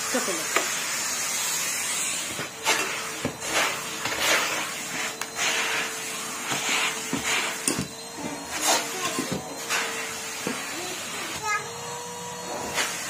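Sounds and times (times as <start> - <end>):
vacuum cleaner running: 0.0 - 13.0.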